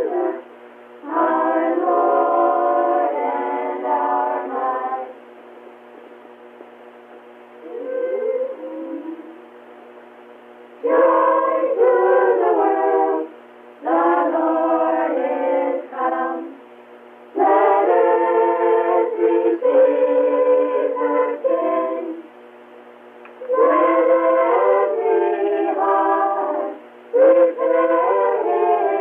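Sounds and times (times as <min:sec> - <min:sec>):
children singing a carol: 0:00.0 - 0:00.4, 0:01.0 - 0:05.1, 0:10.8 - 0:16.6, 0:17.4 - 0:22.2, 0:23.5 - 0:29.0.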